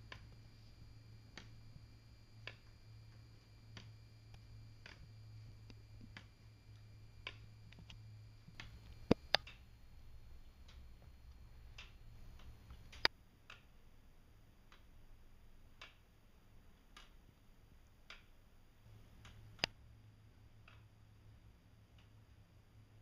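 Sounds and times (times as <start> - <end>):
wooden clock ticking: 0.0 - 13.7.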